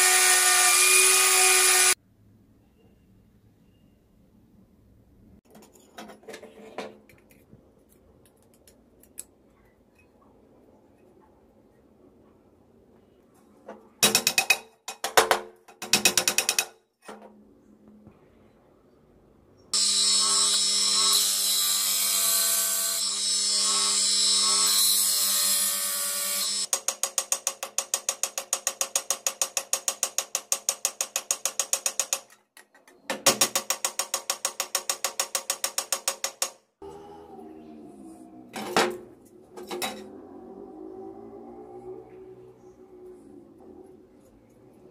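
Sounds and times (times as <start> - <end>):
bench grinder grinding steel: 0.0 - 2.0, 19.8 - 26.6.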